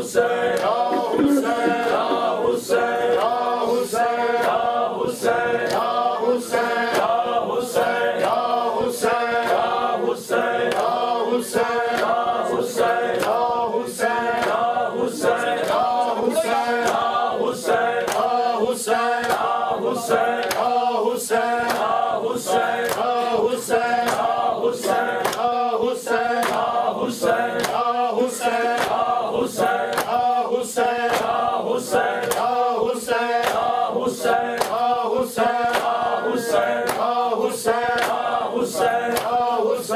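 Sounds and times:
men chanting in unison: 0:00.0 - 0:39.9
hands slapping bare chests: 0:25.2 - 0:25.5, 0:26.4 - 0:26.7, 0:29.6 - 0:30.3, 0:32.2 - 0:32.5, 0:33.3 - 0:33.7, 0:34.5 - 0:34.9, 0:35.6 - 0:36.0, 0:36.8 - 0:37.2, 0:37.9 - 0:38.3, 0:39.1 - 0:39.4.

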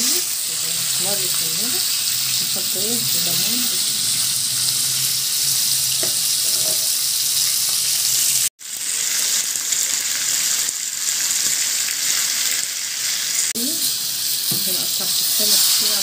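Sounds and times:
fish sizzling in hot oil: 0:00.0 - 0:16.0.

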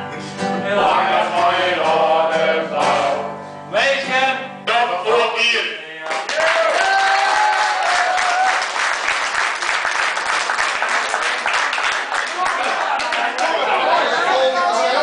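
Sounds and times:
acoustic guitar: 0:00.0 - 0:05.7
audience applause: 0:06.1 - 0:14.5.

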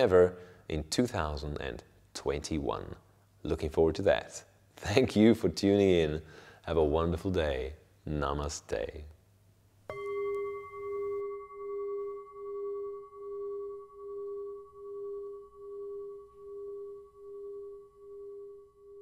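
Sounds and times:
singing bowl ringing: 0:09.9 - 0:19.0.

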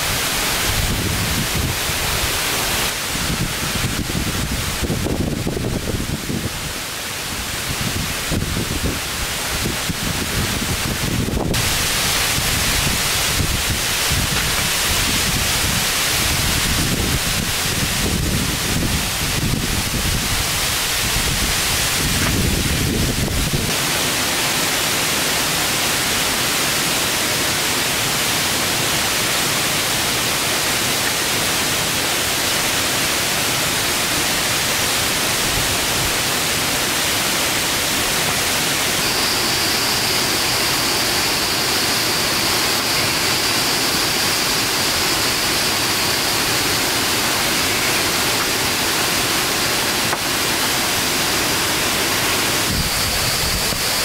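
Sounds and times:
water hissing: 0:00.0 - 0:54.0
wind buffeting microphone: 0:00.4 - 0:06.7, 0:07.4 - 0:23.8, 0:52.6 - 0:54.0.

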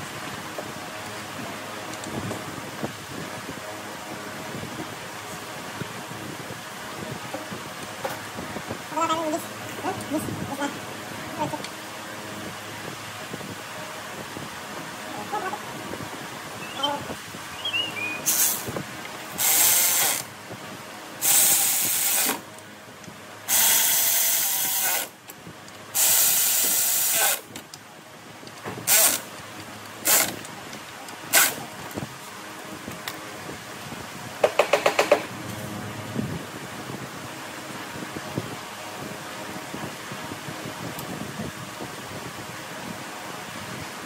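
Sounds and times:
power tool bursts: 0:18.2 - 0:18.6, 0:19.4 - 0:20.3.

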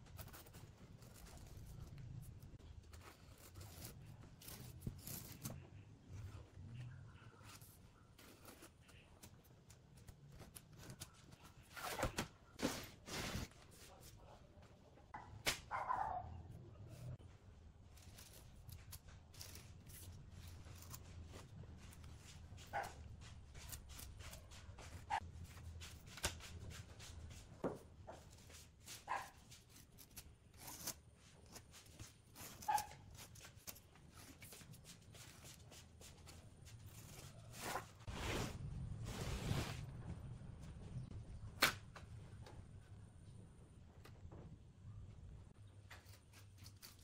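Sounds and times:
scraping rustle: 0:28.2 - 0:40.1.

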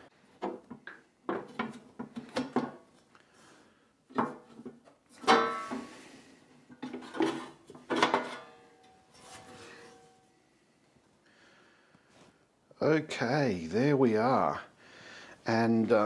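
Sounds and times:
metal cover clanking and scraping: 0:05.2 - 0:06.0, 0:06.7 - 0:10.3.

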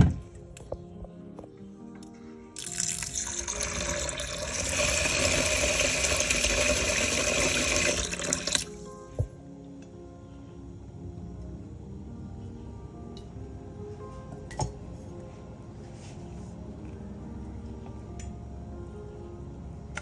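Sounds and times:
soft background music: 0:00.0 - 0:20.0
water running into a plastic bowl: 0:02.6 - 0:08.7.

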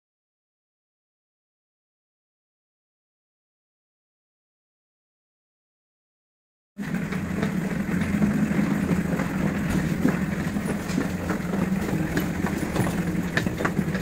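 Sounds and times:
vehicle engine running: 0:06.8 - 0:14.0.

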